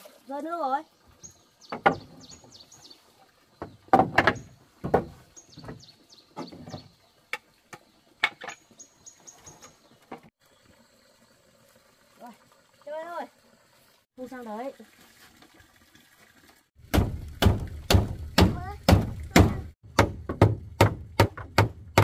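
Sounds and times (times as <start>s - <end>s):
small birds chirping: 0.6s - 4.6s, 5.2s - 10.9s
wooden knocks on plank floor: 1.7s - 2.2s, 3.6s - 5.8s, 16.9s - 22.0s.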